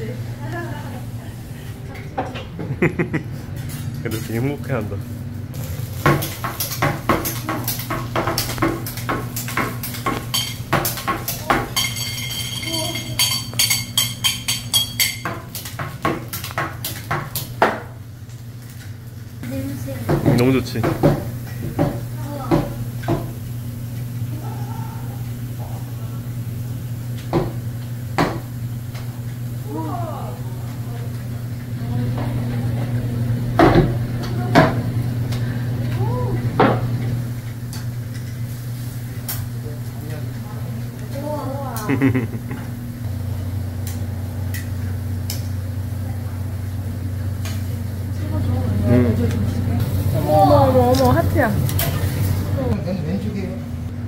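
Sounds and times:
steady low hum: 0.0s - 54.0s
tools knocking on steel griddle: 6.0s - 17.9s, 20.0s - 23.4s, 27.3s - 28.5s, 33.6s - 34.8s
metal spatula clinking on griddle: 11.7s - 15.3s.

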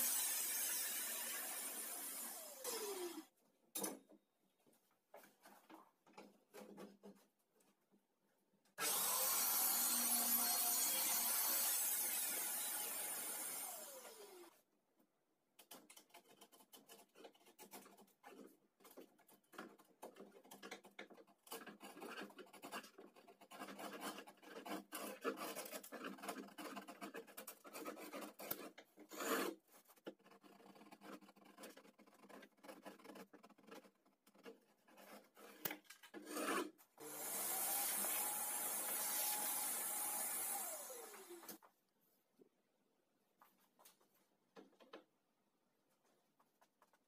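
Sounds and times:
wood chisel scraping: 15.6s - 36.9s.

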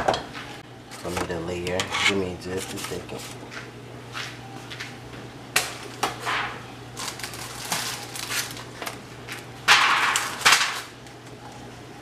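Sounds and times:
loud crinkling rustle: 7.0s - 8.8s.

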